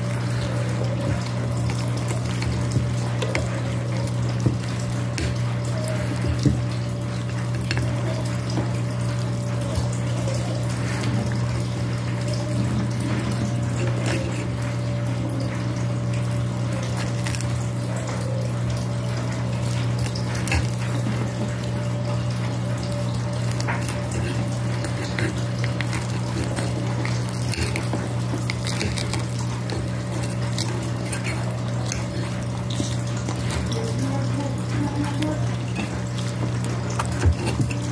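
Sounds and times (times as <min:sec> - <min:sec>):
fork scraping ceramic plate: 0:13.0 - 0:14.6, 0:20.0 - 0:21.5, 0:23.4 - 0:34.0, 0:34.6 - 0:37.9.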